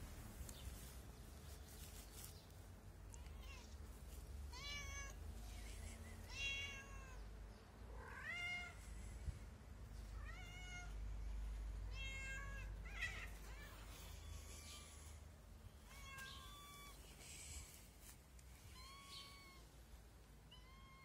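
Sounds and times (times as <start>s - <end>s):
cat meowing: 3.1s - 3.8s, 4.5s - 5.2s, 6.3s - 7.2s, 10.2s - 11.0s, 11.9s - 14.9s, 15.8s - 17.0s, 18.6s - 19.7s, 20.5s - 21.0s.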